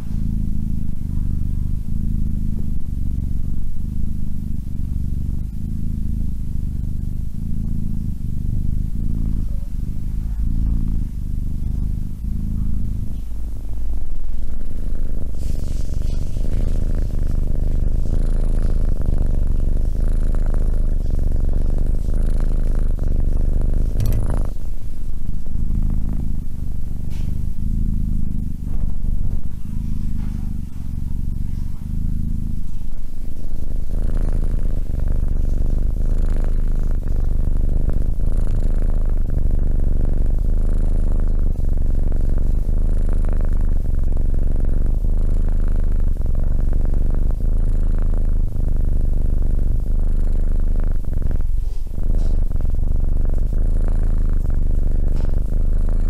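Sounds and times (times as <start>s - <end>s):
kitten purring loudly: 0.0s - 56.0s
brief tap: 24.0s - 24.5s.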